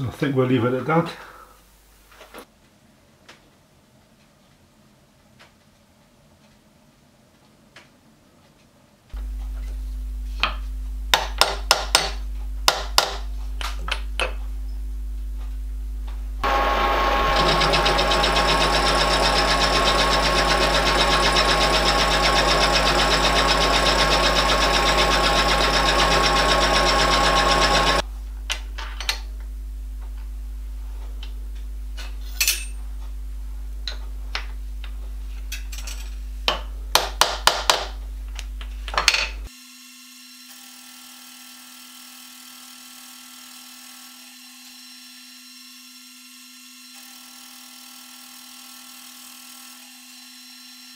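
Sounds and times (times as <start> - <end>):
machine humming: 16.3 - 28.0
milling machine grinding metal: 16.4 - 28.0.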